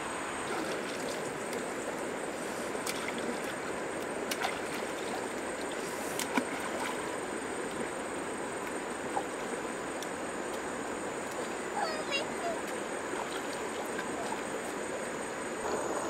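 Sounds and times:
stream water running: 0.0s - 15.7s
small splashes of hands in water: 2.8s - 7.9s.

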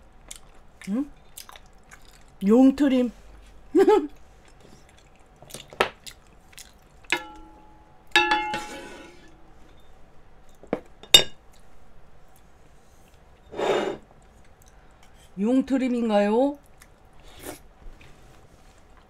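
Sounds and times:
utensils clinking on metal pots: 7.1s - 9.4s.

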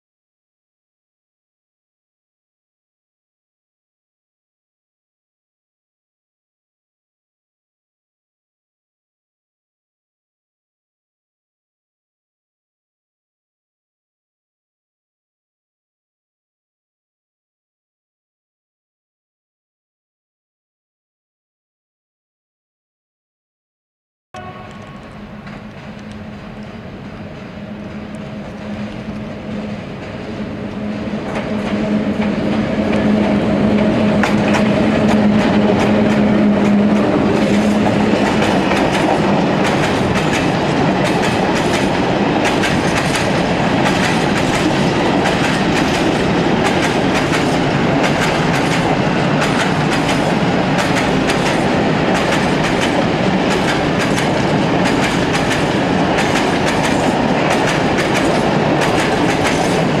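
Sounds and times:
electric locomotive humming: 24.4s - 60.0s
train wheels clicking over rail joints: 24.8s - 60.0s.

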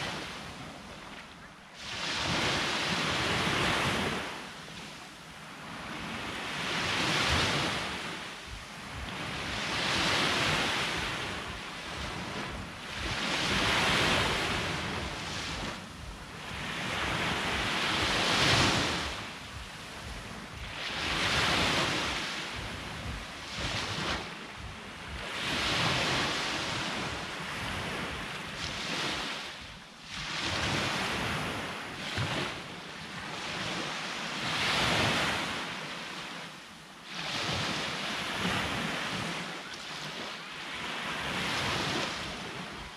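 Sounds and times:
sea waves breaking: 0.0s - 42.9s
wind buffeting microphone: 5.8s - 32.4s.

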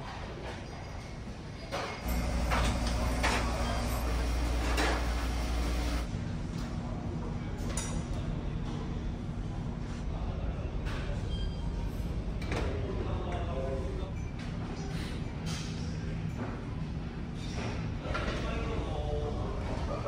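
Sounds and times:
ship machinery droning: 2.0s - 6.1s.

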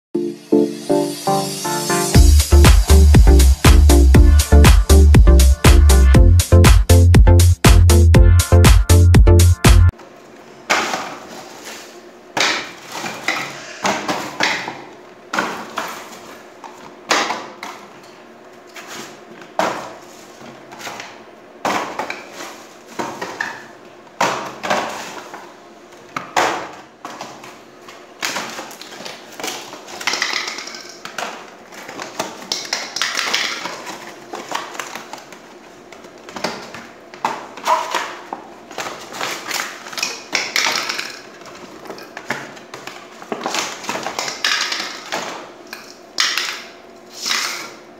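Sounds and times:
cardboard rustling and scraping: 11.0s - 12.0s, 18.7s - 21.1s, 22.0s - 23.4s, 24.6s - 25.4s, 38.6s - 39.8s.

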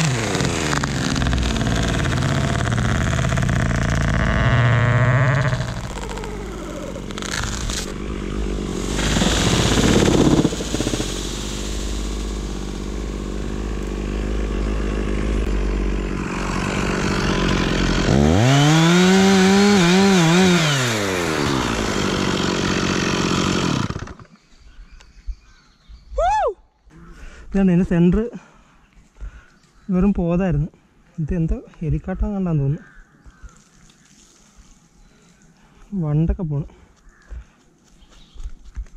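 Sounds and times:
treetop crashing down: 0.0s - 14.2s
chainsaw idling and revving: 0.0s - 24.4s.

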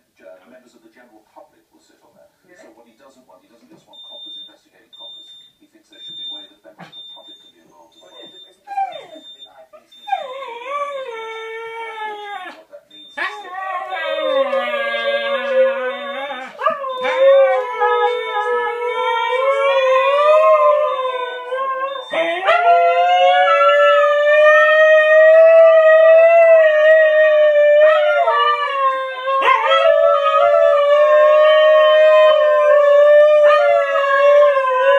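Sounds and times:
husky howling: 13.2s - 34.9s.

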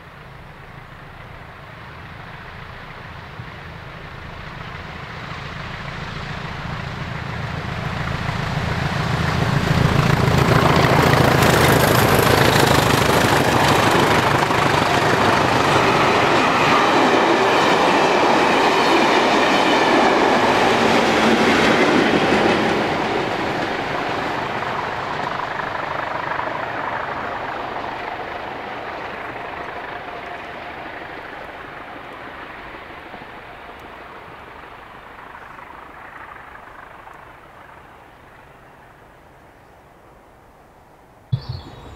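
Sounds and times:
diesel locomotive engine drone: 0.0s - 40.7s, 41.3s - 41.9s.

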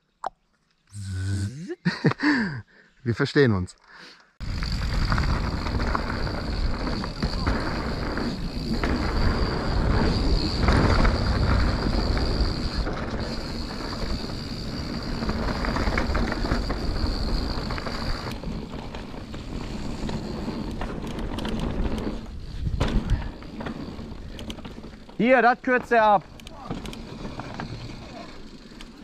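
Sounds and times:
wind rushing over microphone: 4.4s - 18.4s
bike tyres rumbling over ground: 4.4s - 29.0s.

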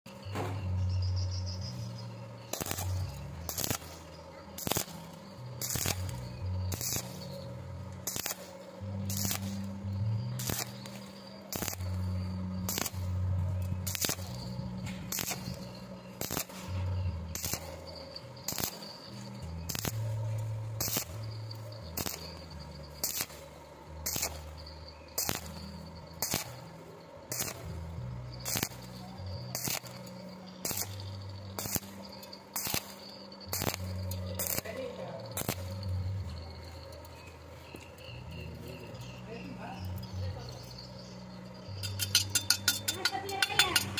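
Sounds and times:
welding arc crackling: 0.1s - 43.9s
low bass notes: 0.6s - 32.1s.

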